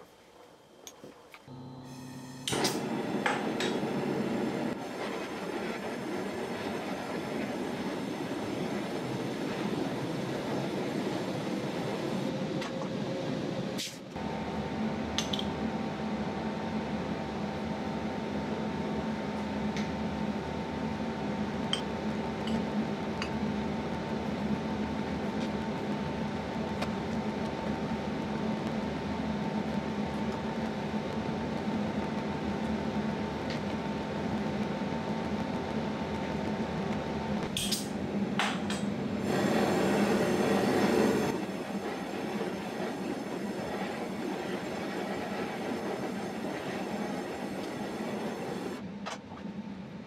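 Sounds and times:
steady mechanical hum: 0:00.0 - 0:50.0
gas torch flame hissing: 0:39.2 - 0:48.8.

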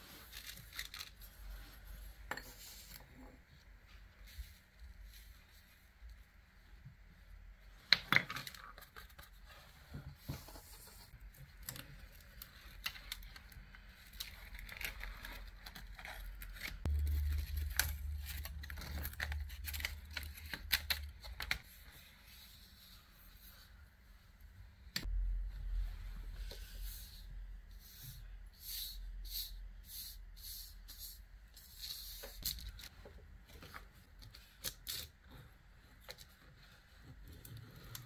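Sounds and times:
paper peeling and crinkling: 0:11.6 - 0:21.6
low hum: 0:16.9 - 0:21.5, 0:25.0 - 0:27.7.

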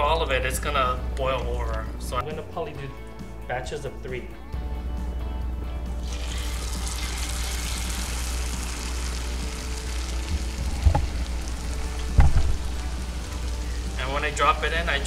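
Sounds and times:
food sizzling in deep-frying oil: 0:06.0 - 0:15.0.

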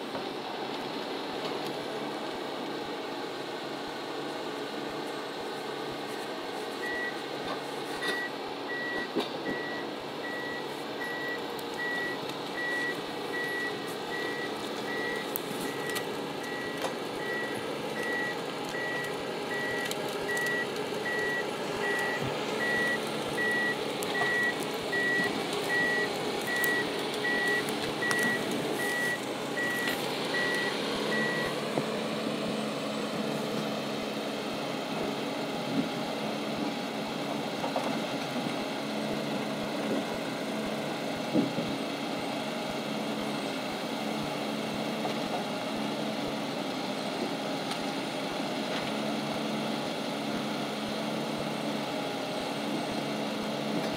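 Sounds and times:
diesel engine running: 0:00.0 - 0:53.9
reversing alarm beeping: 0:06.8 - 0:07.2, 0:08.0 - 0:31.6.

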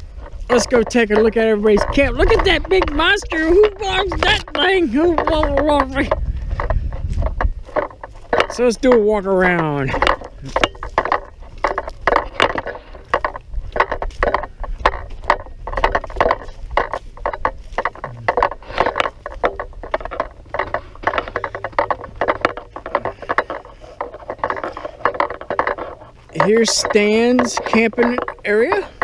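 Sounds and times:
low microphone rumble: 0:00.0 - 0:26.4
footsteps on dry leaves: 0:01.4 - 0:21.4.

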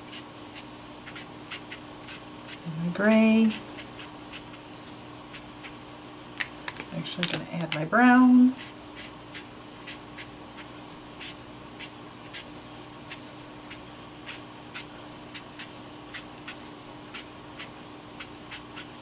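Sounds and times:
marker scratching on card: 0:00.0 - 0:04.6, 0:08.6 - 0:12.5, 0:13.1 - 0:19.0.

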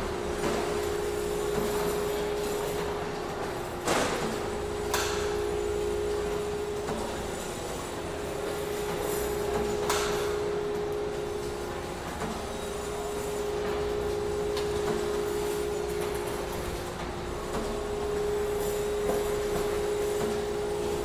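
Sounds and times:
machine hum: 0:00.0 - 0:21.0.

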